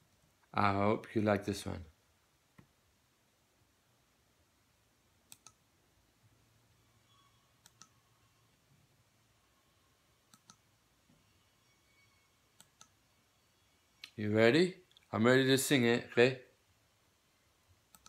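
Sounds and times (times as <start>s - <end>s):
faint sharp clicks: 5.3s - 5.6s, 10.3s - 10.6s.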